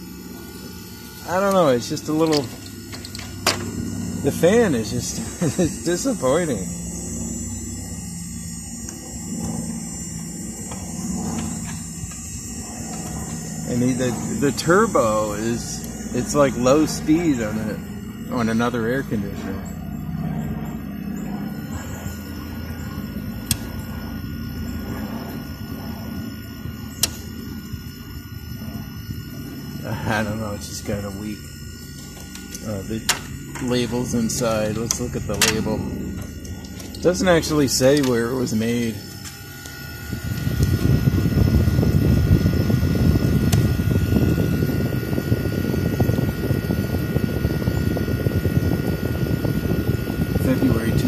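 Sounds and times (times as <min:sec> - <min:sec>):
air conditioner humming: 0:00.0 - 0:51.0
faint steady whine: 0:00.0 - 0:51.0
sharp ticks: 0:23.2 - 0:24.0, 0:26.9 - 0:27.3.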